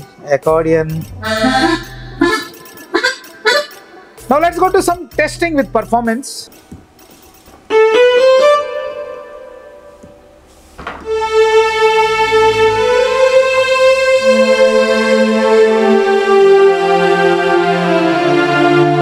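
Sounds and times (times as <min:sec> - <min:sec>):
electronic keyboard playing: 0:01.0 - 0:05.1, 0:11.0 - 0:17.8.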